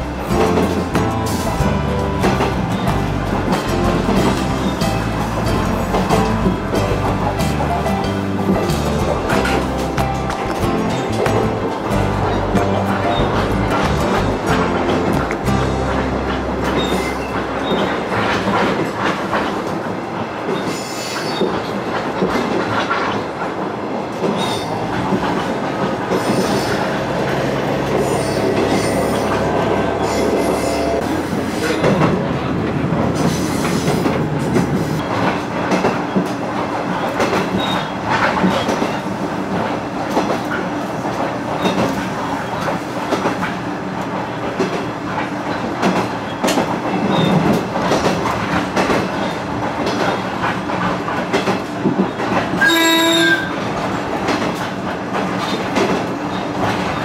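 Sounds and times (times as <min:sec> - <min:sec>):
low diesel engine drone: 0:00.0 - 0:18.7
train wheels clacking over rail joints: 0:00.0 - 0:57.0.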